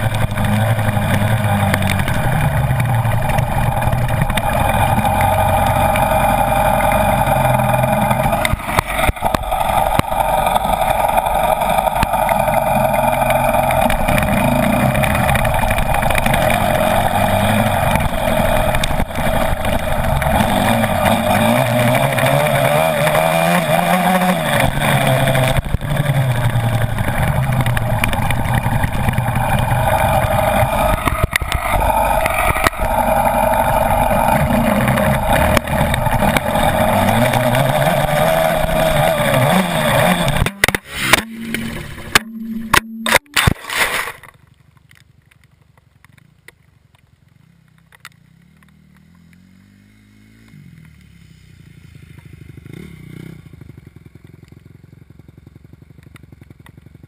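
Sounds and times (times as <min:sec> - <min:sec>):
dirt bike engine revving: 0:00.0 - 0:44.3, 0:48.6 - 0:53.8.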